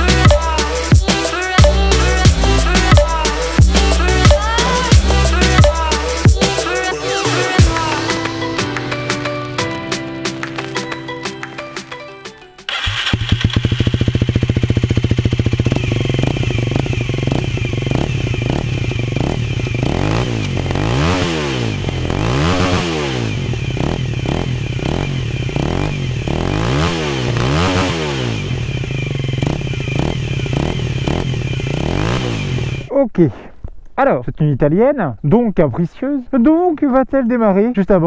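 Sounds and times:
motorcycle engine idling and revving: 0:00.0 - 0:08.5, 0:12.7 - 0:32.9.

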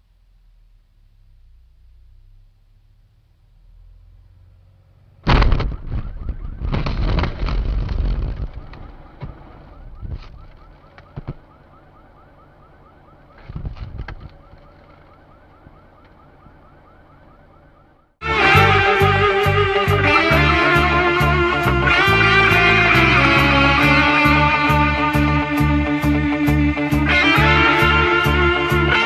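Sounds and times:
car crash impact: 0:05.2 - 0:11.5
crunching and clattering: 0:05.3 - 0:11.4, 0:13.3 - 0:16.2.

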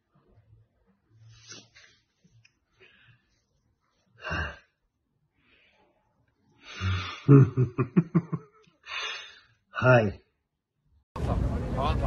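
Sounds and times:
man laughing: 0:07.2 - 0:08.6.

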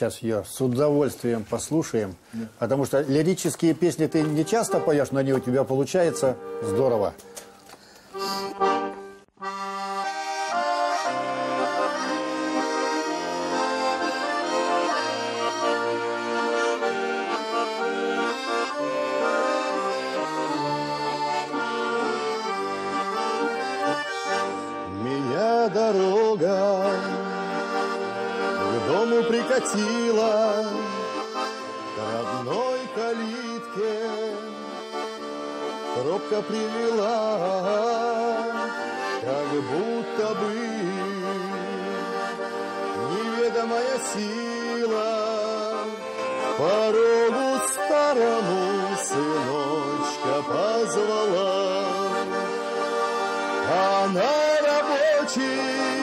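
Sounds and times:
button accordion playing: 0:02.3 - 0:56.0
man singing: 0:03.1 - 0:06.7, 0:24.8 - 0:27.8, 0:28.6 - 0:35.2, 0:35.8 - 0:52.6, 0:53.6 - 0:56.0.

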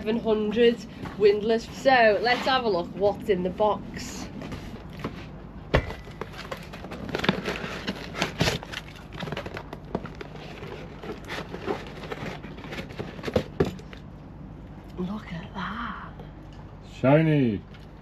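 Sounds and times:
cardboard crackling and rustling: 0:04.3 - 0:13.8.

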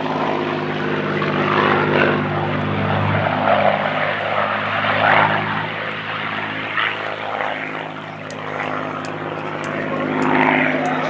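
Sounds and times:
propeller plane engine droning: 0:00.0 - 0:11.0.

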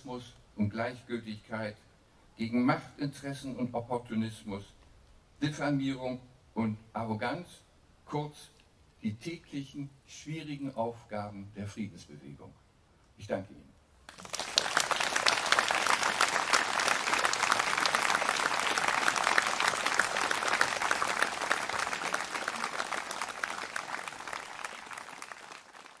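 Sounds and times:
audience applauding: 0:14.1 - 0:26.0.

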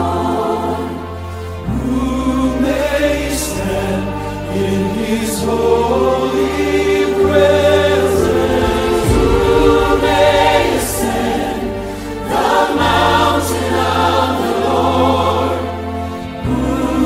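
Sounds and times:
choir singing sustained chords: 0:00.0 - 0:17.0
deep bass notes: 0:05.0 - 0:14.1.

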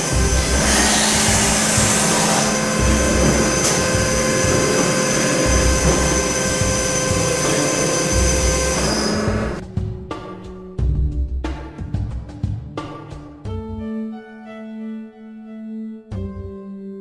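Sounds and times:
band saw running: 0:00.0 - 0:09.6.

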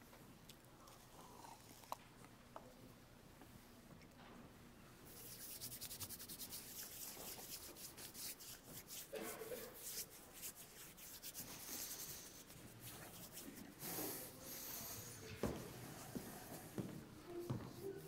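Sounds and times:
people rustling and shuffling: 0:06.6 - 0:18.0.

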